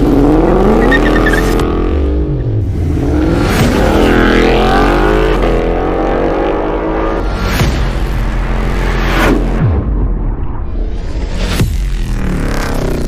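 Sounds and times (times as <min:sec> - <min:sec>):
car engine accelerating hard: 0:00.0 - 0:09.6.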